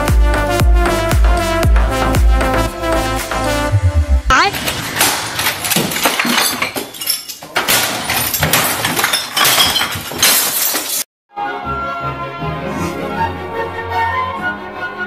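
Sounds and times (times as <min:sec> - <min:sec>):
music: 0:00.0 - 0:04.3, 0:11.3 - 0:15.0
debris clattering: 0:04.5 - 0:11.1
glass breaking: 0:04.6 - 0:11.1.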